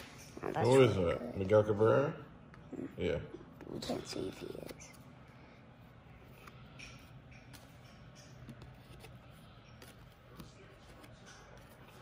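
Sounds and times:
low steady hum: 0.0 - 12.0
cards being flipped by hand: 3.6 - 12.0.

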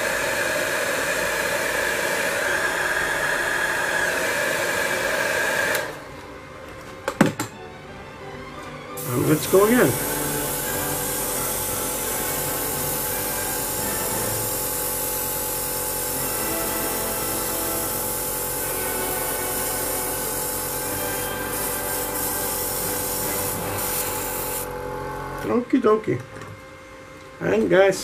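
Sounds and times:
mechanical hum: 0.0 - 28.0
airbrush spraying hiss: 9.0 - 24.7.

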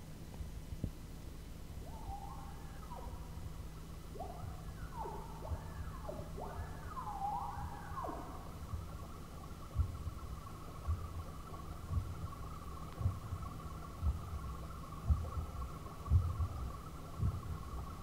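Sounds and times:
low rumble: 0.0 - 18.0
synthesizer tone swooping: 1.8 - 9.6.

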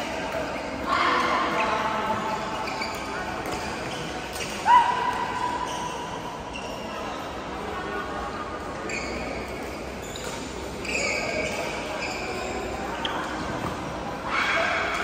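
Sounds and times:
shoes squeaking on court: 1.5 - 4.6, 5.4 - 7.2, 8.6 - 14.0.

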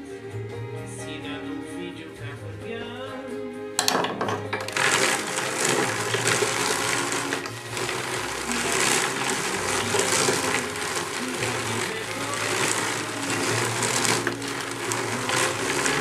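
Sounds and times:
drum carder whirring: 3.8 - 16.0.

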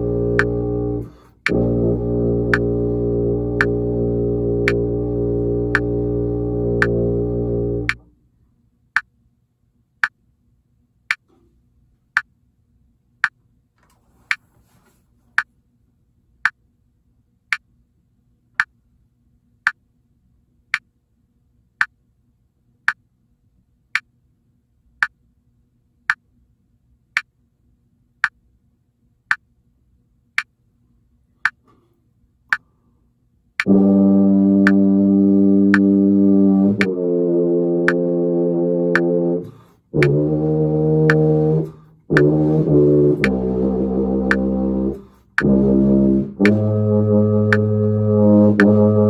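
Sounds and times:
metronome ticking: 2.4 - 2.8, 3.5 - 3.9, 4.6 - 4.9, 5.7 - 6.0, 31.4 - 31.6, 32.5 - 32.7, 34.6 - 34.9, 35.7 - 36.0, 41.0 - 47.9.

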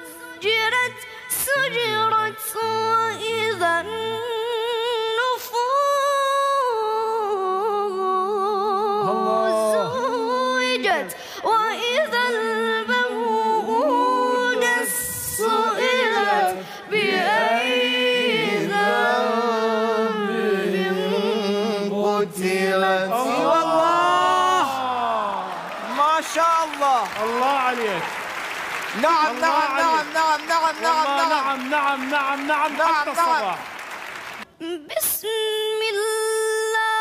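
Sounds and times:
man reciting melodically: 0.8 - 4.4, 8.9 - 11.1.

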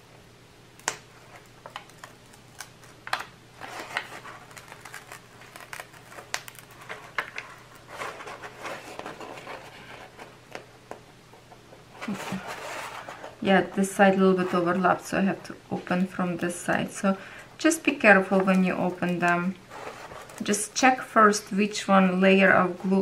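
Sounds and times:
paper rustling and crinkling: 1.2 - 10.4, 12.0 - 13.4, 18.6 - 20.6.

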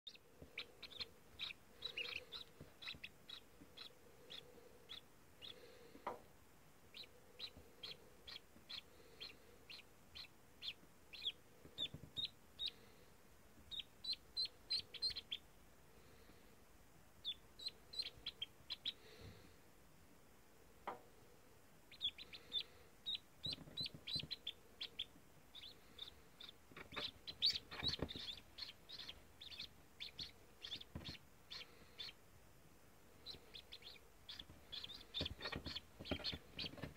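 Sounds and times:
ducklings peeping: 0.1 - 6.2, 6.9 - 16.4, 17.2 - 19.6, 21.9 - 32.3, 33.1 - 36.9
rustles and knocks: 26.7 - 28.4, 30.9 - 31.2, 34.4 - 36.9.

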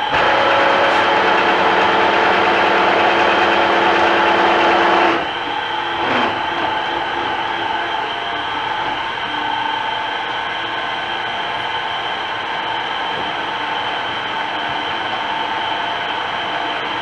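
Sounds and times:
milling machine gears whining: 0.0 - 17.0
machine knock: 0.1 - 5.2.

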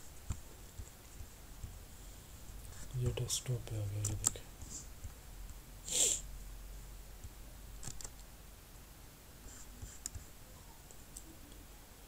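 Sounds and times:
computer mouse clicks: 4.0 - 4.4, 7.8 - 8.3
short hiss: 5.8 - 6.2.

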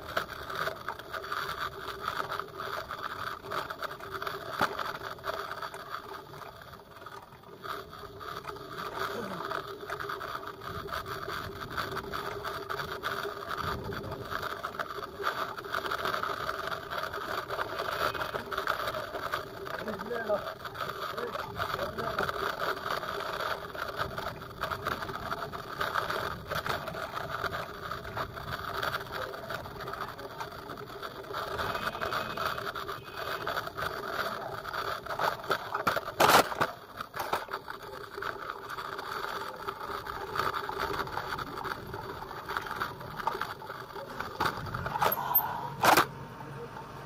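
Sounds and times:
bike riding on dirt rattling: 0.0 - 46.1.

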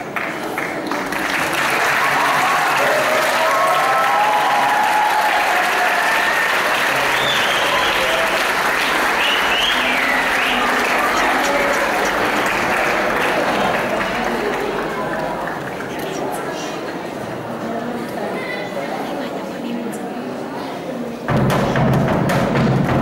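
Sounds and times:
audience applauding: 0.0 - 16.5.

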